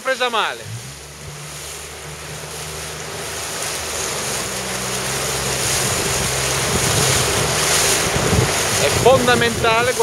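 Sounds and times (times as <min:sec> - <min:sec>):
motorboat engine hum: 0:00.0 - 0:10.0
water splashing: 0:00.0 - 0:10.0
wind on microphone: 0:03.8 - 0:10.0.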